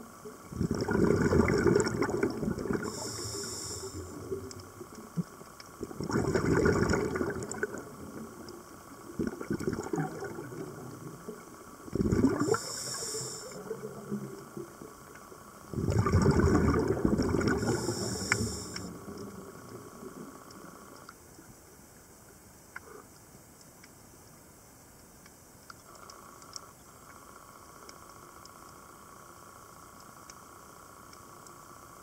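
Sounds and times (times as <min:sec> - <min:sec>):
underwater bubbling and gurgling: 0:00.0 - 0:23.1
water gushes: 0:00.5 - 0:04.5, 0:05.8 - 0:08.4, 0:09.1 - 0:14.4, 0:15.7 - 0:19.8.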